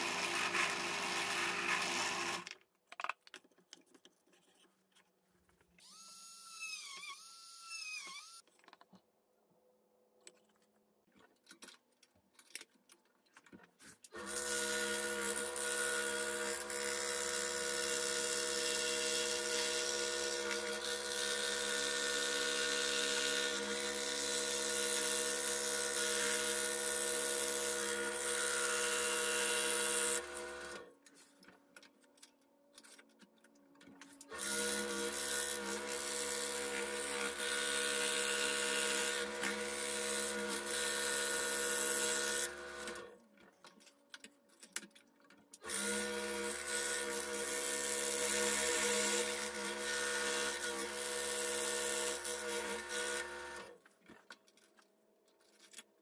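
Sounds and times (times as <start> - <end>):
scroll saw cutting plywood: 0.0 - 2.5, 14.1 - 30.9, 34.3 - 43.2, 45.6 - 53.8.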